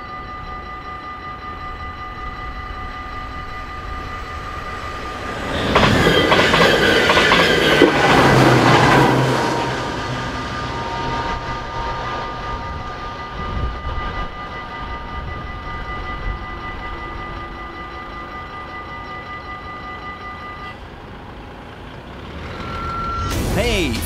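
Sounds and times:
level crossing warning bells: 0.0s - 24.0s
train rumbling: 1.7s - 24.0s
road traffic rumble: 3.8s - 14.0s, 20.7s - 24.0s.

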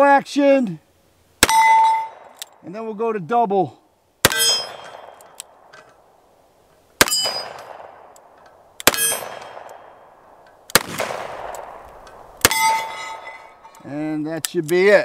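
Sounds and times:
steel target clanging: 1.4s - 2.4s, 4.3s - 6.0s, 7.0s - 8.0s, 8.8s - 10.0s, 11.1s - 14.0s
revolver shots: 10.7s - 13.4s.

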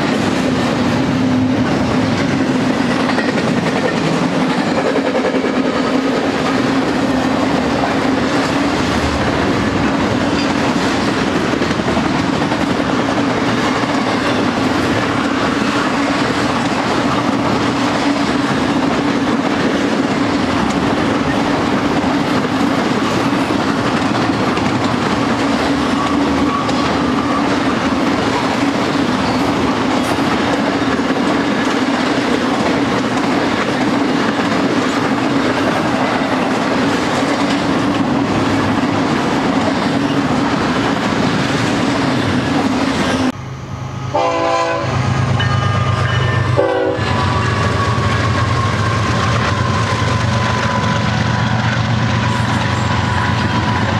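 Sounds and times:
train wheels rumbling on rail: 0.0s - 53.9s
train horn blasts: 43.5s - 48.9s.

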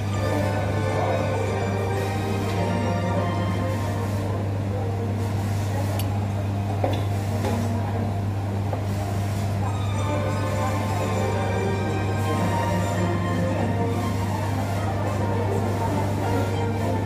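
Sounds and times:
faint background chatter: 0.0s - 17.0s.

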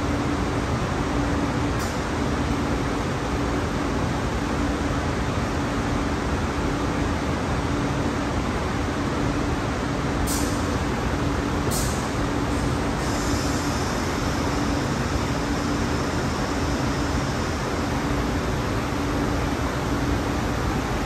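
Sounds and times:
industrial machinery noise: 0.0s - 21.0s.

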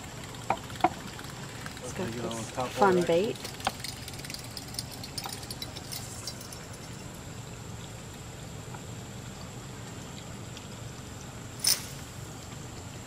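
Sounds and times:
river water: 0.0s - 13.0s.

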